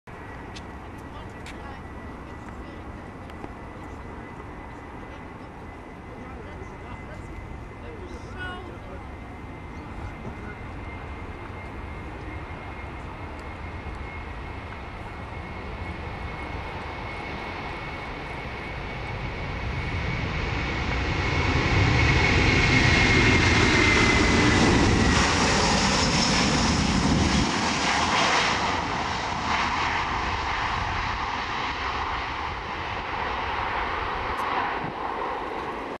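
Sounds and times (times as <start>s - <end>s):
jet taking off: 0.2s - 36.0s.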